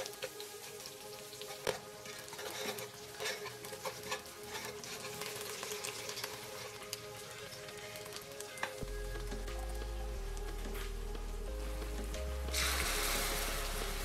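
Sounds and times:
sugar sizzling and bubbling: 0.0s - 14.0s
metal ladle scraping pot: 2.1s - 6.7s.

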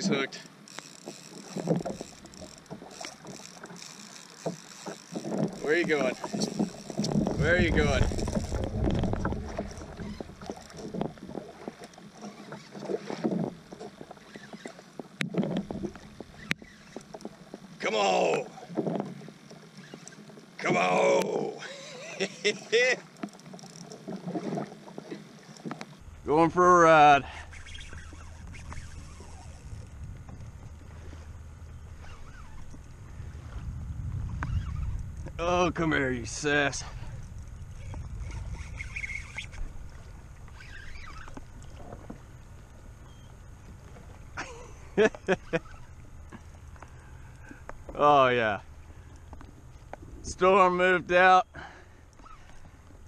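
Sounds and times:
faint clicks and squeaks: 0.0s - 17.8s, 18.5s - 20.6s, 23.0s - 26.2s, 27.3s - 33.1s, 34.2s - 35.4s, 36.4s - 44.4s, 45.1s - 48.0s, 48.6s - 50.4s, 52.1s - 53.0s
water splashing against kayak hull: 0.0s - 53.0s
wind rumbling on microphone: 4.4s - 11.8s, 26.0s - 44.4s
small clicks and knocks: 23.1s - 26.0s.

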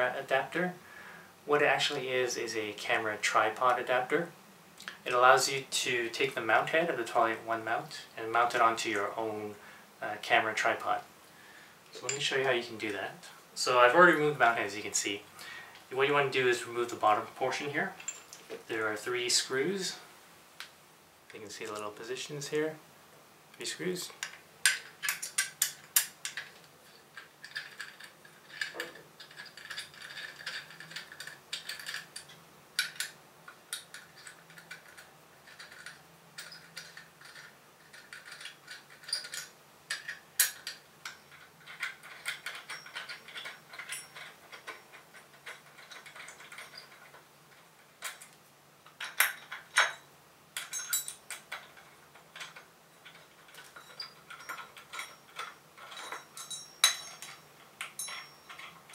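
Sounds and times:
metal clicks and ticks: 23.5s - 50.0s, 50.6s - 58.9s
screws scraping: 24.7s - 48.4s, 50.6s - 58.9s.

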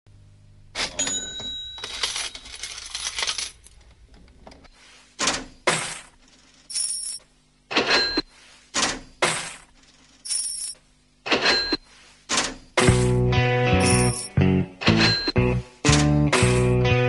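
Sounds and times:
cash register bell: 0.8s - 3.5s, 6.7s - 7.2s, 10.3s - 10.8s, 11.4s - 11.8s, 13.8s - 15.4s
cash register clunks: 0.8s - 3.6s
coins jangling: 1.0s - 3.8s, 6.4s - 7.2s, 10.0s - 10.8s, 13.8s - 14.3s.

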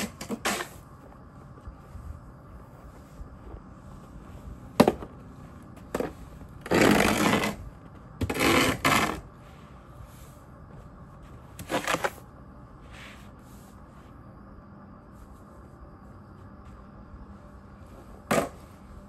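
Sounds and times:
snow shovel scraping pavement: 0.0s - 0.8s, 6.0s - 9.3s, 11.6s - 12.2s.

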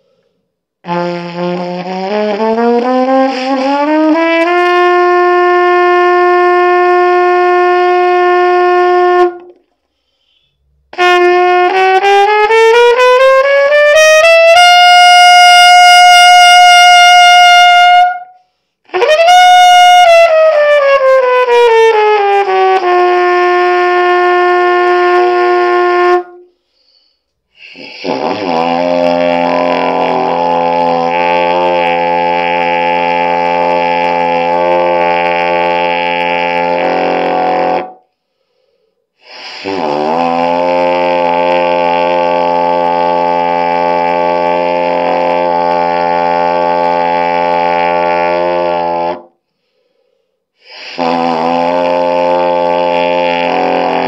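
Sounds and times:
player breathing: 0.0s - 0.6s, 9.8s - 10.8s, 26.5s - 28.0s, 38.1s - 39.6s, 49.4s - 51.0s
trumpet playing scales: 0.0s - 9.7s, 10.9s - 49.9s, 50.5s - 54.0s.

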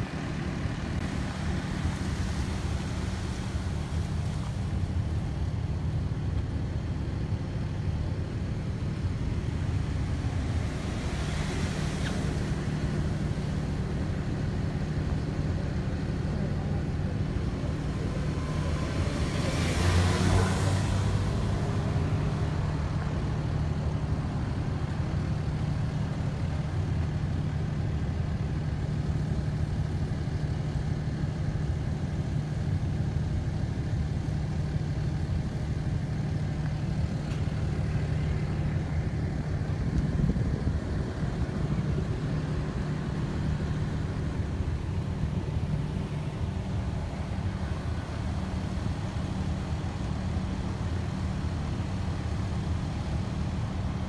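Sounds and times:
engine idling hum: 0.0s - 54.0s
vehicle passing: 16.8s - 23.3s.

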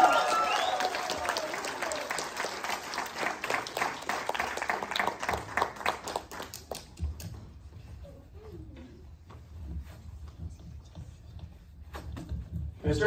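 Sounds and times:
audience applause: 0.0s - 6.9s.

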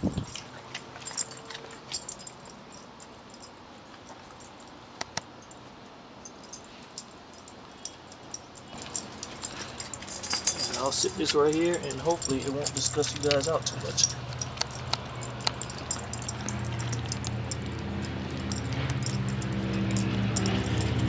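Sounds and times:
collar tags jingling: 0.0s - 21.0s
dog gnawing a bone: 14.2s - 20.7s.

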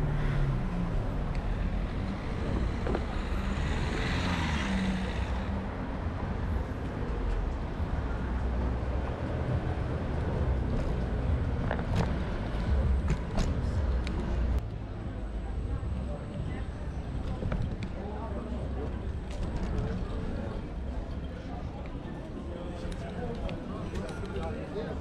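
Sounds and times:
vehicle passing: 0.0s - 6.7s
traffic rumble: 0.0s - 25.0s.

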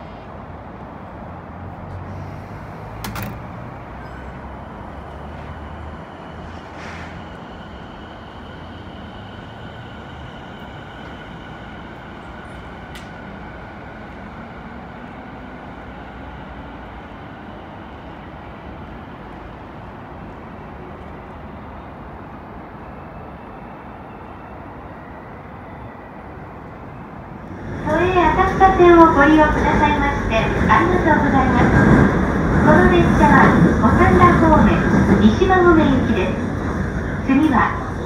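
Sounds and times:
electric train rumble and whine: 0.0s - 38.0s.

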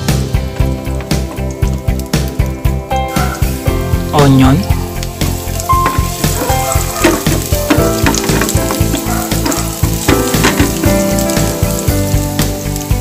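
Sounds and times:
background music with a beat: 0.0s - 13.0s
onion sizzling in oil: 0.0s - 13.0s
spatula scraping a pan: 5.8s - 10.9s.

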